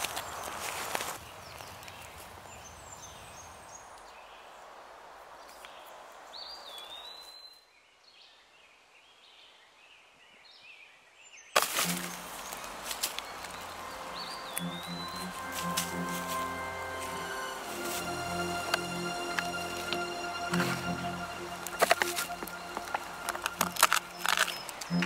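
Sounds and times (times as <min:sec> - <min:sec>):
bird calls: 0:11.6 - 0:25.0
music: 0:11.8 - 0:12.8, 0:13.4 - 0:25.0.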